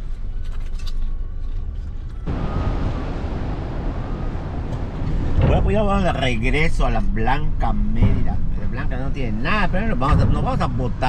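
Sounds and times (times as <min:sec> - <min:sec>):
motor low rumble: 0:01.5 - 0:07.0.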